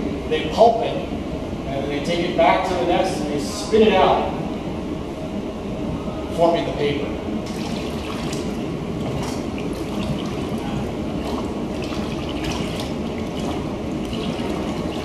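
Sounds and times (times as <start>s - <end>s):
pulp pouring and splashing into sink: 7.5s - 15.0s.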